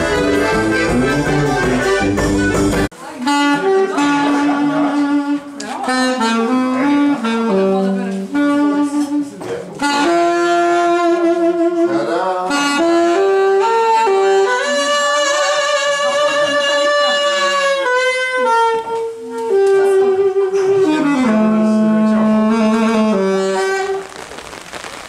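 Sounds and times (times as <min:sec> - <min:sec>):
saxophone solo melody: 0:00.0 - 0:25.0.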